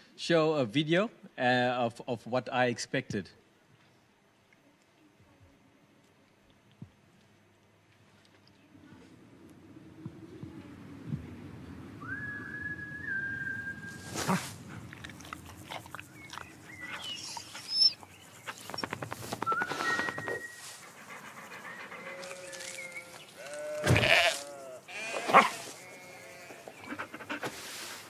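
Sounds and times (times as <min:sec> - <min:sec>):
cartoon sheep bleating: 0:23.4 - 0:26.4.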